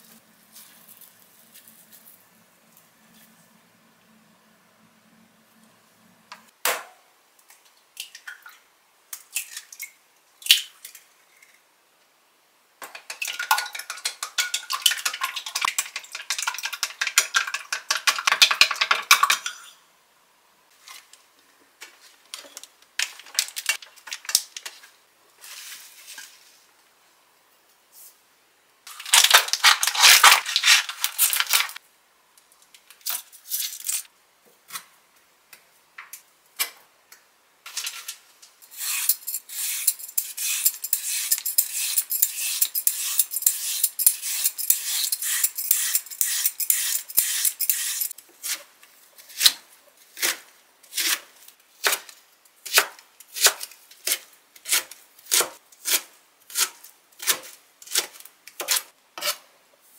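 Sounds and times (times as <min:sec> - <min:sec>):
plastic packaging crinkling: 0:28.9 - 0:31.8
vegetable peeler scraping carrot: 0:38.7 - 0:51.9, 0:52.7 - 0:59.5.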